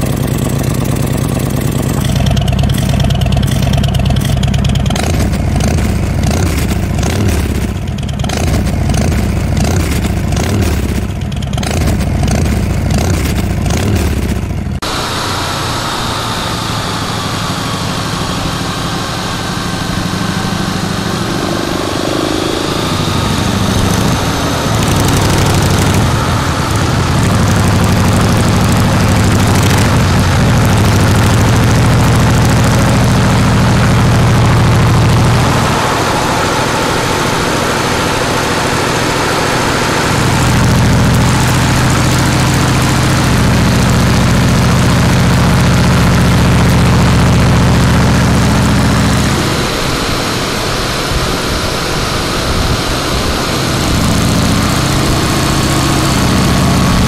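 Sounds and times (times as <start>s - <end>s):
motorcycle engine exhaust: 0.0s - 57.0s
wind noise: 48.1s - 57.0s.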